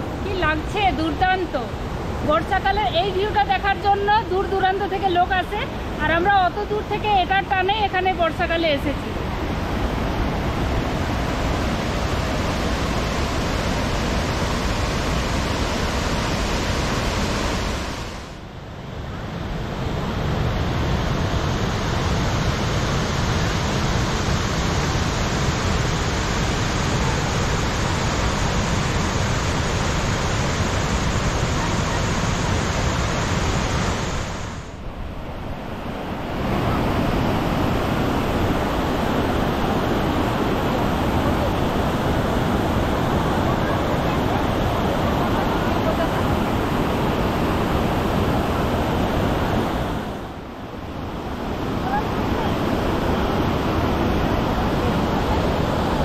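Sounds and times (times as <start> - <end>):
waterfall rushing: 9.2 - 18.4, 20.6 - 34.7, 35.6 - 56.0.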